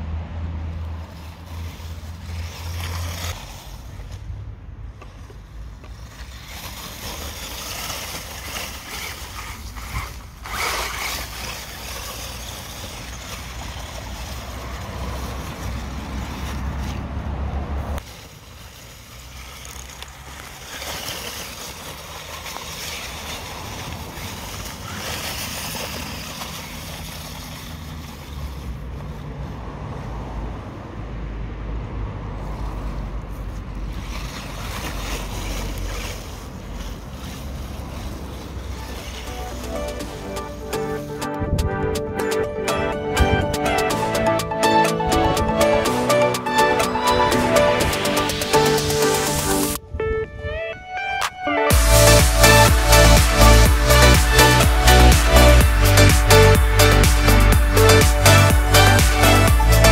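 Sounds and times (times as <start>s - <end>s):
rustle of dry leaves: 0.0s - 31.0s, 32.2s - 49.8s, 51.7s - 59.9s.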